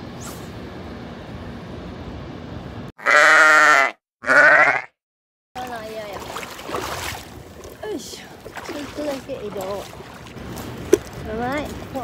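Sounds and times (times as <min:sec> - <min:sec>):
wavering animal bleats: 0:03.0 - 0:05.0
wind and water hiss: 0:05.6 - 0:12.0.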